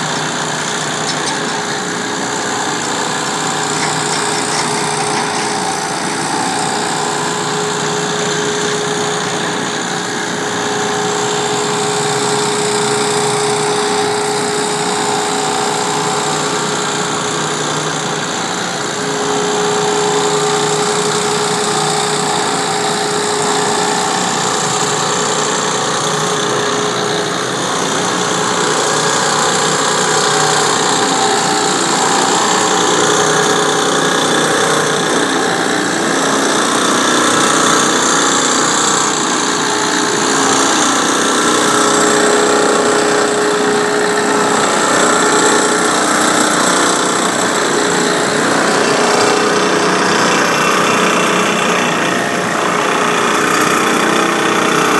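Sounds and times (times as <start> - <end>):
water jetting from spray gun: 0.0 - 54.0
pump engine humming: 0.0 - 54.9.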